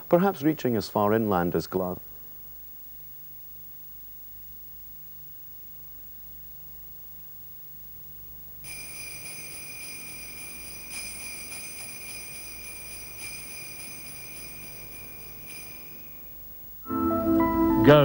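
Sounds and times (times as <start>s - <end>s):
jingle bells ringing: 8.6s - 18.0s.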